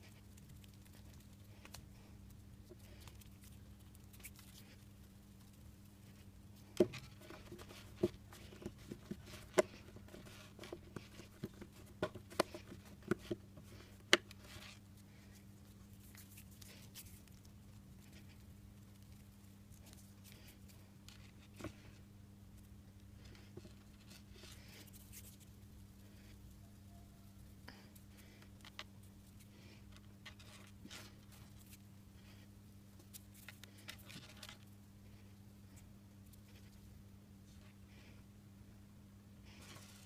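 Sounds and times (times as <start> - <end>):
hands handling dough: 0.0 - 26.4, 39.5 - 40.0
steady low hum: 0.0 - 40.0.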